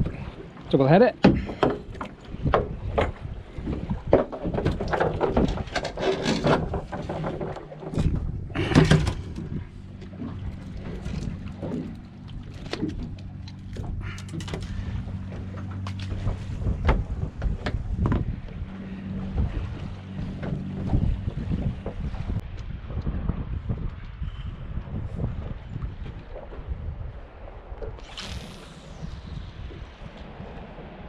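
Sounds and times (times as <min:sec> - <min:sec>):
steady low hum: 0:07.3 - 0:22.5.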